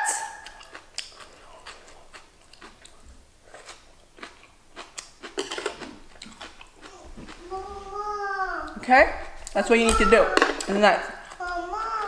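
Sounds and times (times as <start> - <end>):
person chewing crunchy vegetables: 0.4 - 7.8, 10.3 - 12.0.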